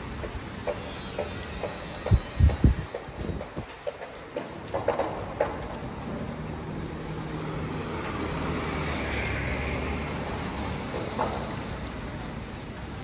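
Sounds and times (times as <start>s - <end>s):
tyre hiss on wet street: 0.0s - 3.8s, 5.8s - 13.0s.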